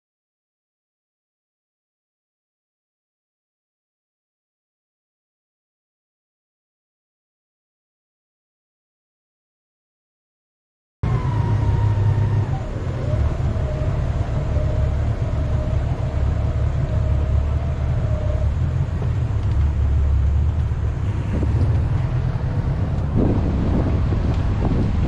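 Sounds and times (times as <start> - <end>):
boat engine rumbling: 11.0 - 25.0
thin engine whine: 11.0 - 25.0.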